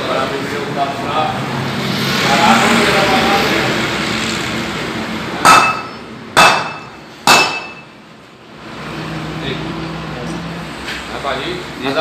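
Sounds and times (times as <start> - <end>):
hammer striking metal: 5.4 - 8.0.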